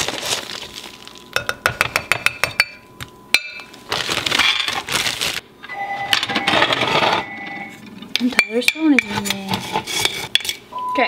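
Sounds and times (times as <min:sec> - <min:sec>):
plastic bag crinkling: 0:00.0 - 0:01.4, 0:03.7 - 0:05.5.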